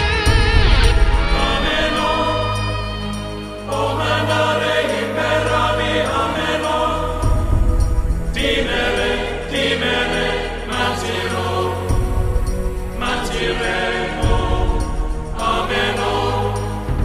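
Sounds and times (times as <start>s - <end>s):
heavy low beat: 0.0s - 4.0s, 7.1s - 10.9s, 11.8s - 17.0s
choral chant: 0.0s - 17.0s.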